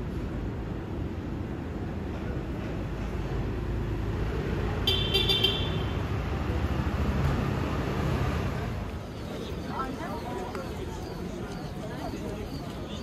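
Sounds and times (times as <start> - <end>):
street traffic rumbling: 0.0 - 13.0
vehicle horn toots: 4.8 - 6.0.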